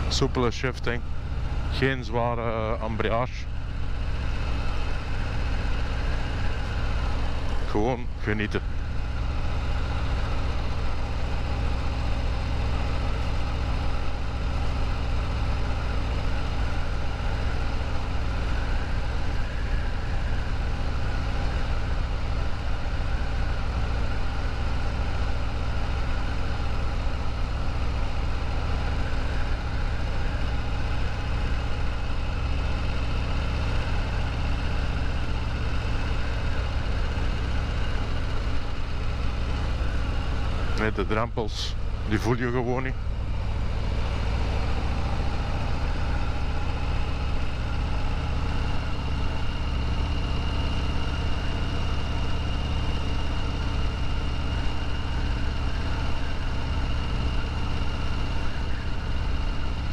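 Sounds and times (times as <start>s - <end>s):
motorcycle engine cruising: 41.8s - 59.9s.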